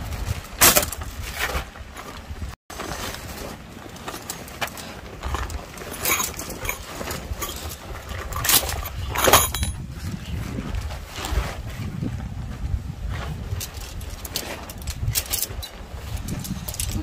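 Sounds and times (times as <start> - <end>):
tent fabric rustling: 0.0 - 17.0
gear clinking: 3.8 - 9.8, 13.5 - 17.0
wind buffeting microphone: 5.1 - 17.0.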